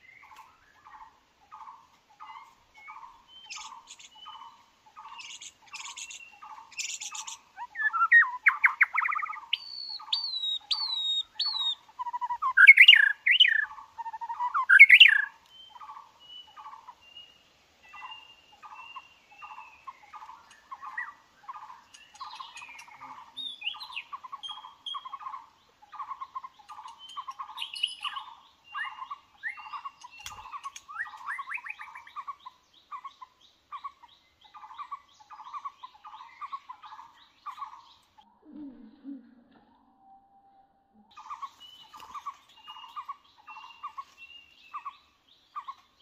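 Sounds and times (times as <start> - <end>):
bird calling clipped notes: 0.0 - 16.0, 18.0 - 38.7, 41.1 - 46.0.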